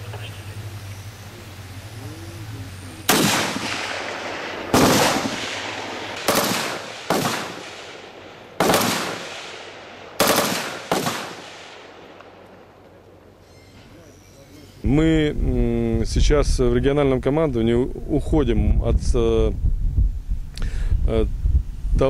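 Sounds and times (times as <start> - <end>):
rifle shots with echo: 3.1 - 12.8.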